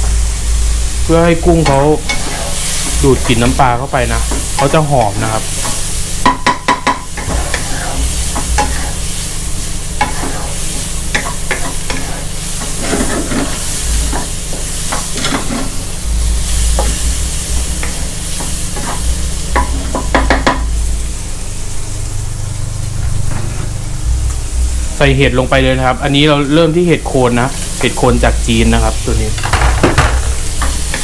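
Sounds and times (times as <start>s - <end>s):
food sizzling in oil: 0.0s - 31.0s
spatula scraping and knocking pan: 1.6s - 3.5s, 10.0s - 15.8s.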